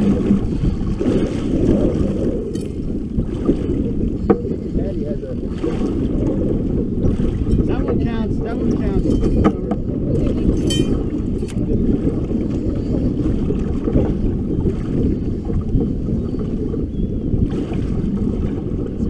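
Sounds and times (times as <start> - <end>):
water slapping boat hull: 0.0 - 19.0
wind rumbling on microphone: 0.0 - 19.0.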